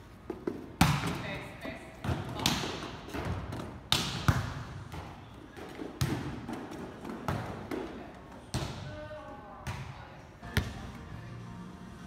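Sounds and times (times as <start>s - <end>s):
balls bouncing on court floor: 0.2s - 11.0s
volleyballs hit by hands: 0.3s - 9.0s.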